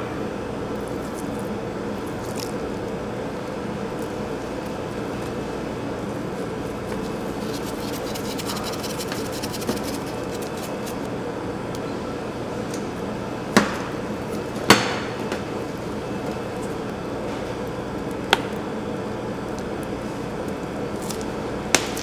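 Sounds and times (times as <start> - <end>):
low steady hum: 0.0 - 14.7.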